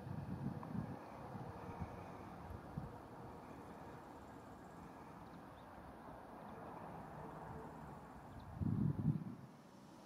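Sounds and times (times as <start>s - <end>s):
wind buffeting microphone: 0.0s - 3.0s, 8.4s - 9.5s.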